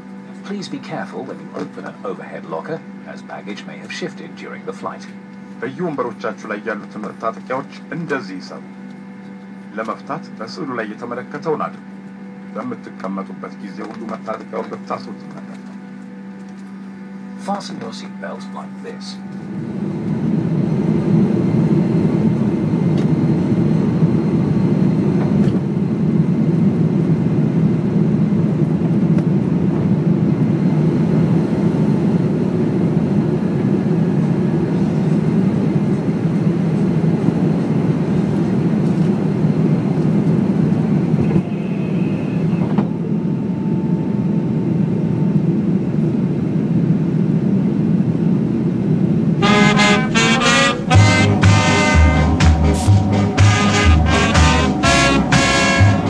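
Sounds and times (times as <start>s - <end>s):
jet engines rumble in cabin: 0.0s - 56.0s
brass band music: 49.4s - 56.0s.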